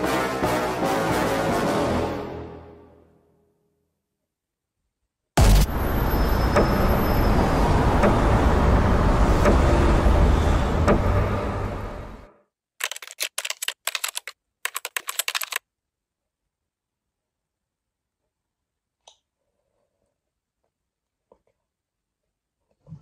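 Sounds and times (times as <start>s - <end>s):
keyboard typing clicks: 12.8s - 15.6s.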